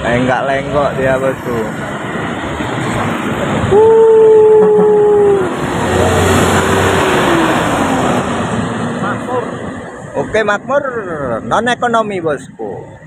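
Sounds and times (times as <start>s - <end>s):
bus engine and tyres: 0.0s - 13.0s.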